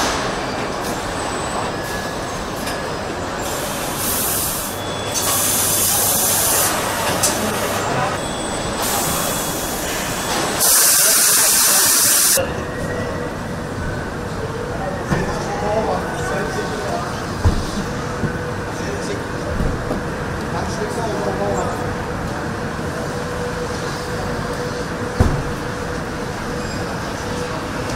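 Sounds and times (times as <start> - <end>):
loud hissing: 10.6 - 12.4.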